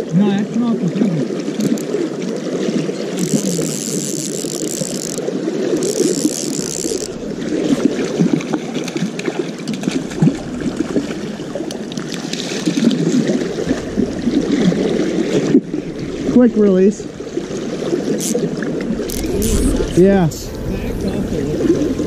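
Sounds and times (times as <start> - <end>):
creek water rushing: 0.0 - 22.0
fishing reel drag buzzing: 1.6 - 2.0, 3.2 - 7.9, 17.8 - 20.0.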